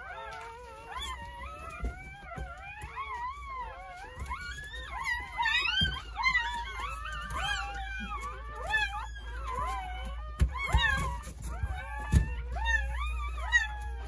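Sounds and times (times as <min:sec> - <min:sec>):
puppies squealing and whining: 0:00.0 - 0:14.0.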